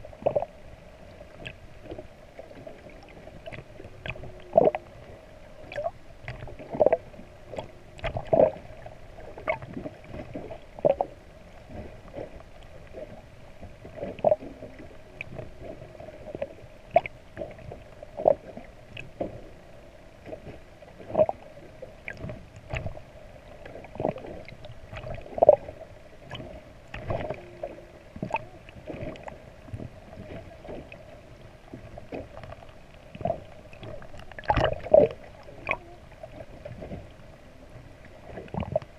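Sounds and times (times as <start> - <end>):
underwater hum: 0.0 - 38.9
underwater knocks and pops: 0.2 - 0.5, 7.6 - 8.6, 22.1 - 23.0, 28.2 - 30.9, 32.1 - 35.9, 38.4 - 38.9.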